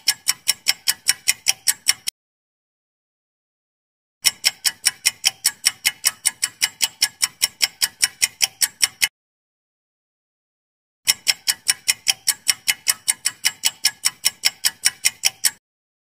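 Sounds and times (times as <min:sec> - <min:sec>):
fast clock-like ticking: 0:00.0 - 0:02.1, 0:04.2 - 0:09.1, 0:11.1 - 0:15.6.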